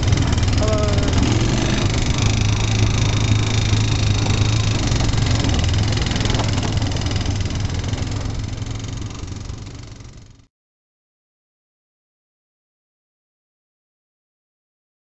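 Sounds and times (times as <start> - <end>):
quad bike engine humming: 0.0 - 10.5.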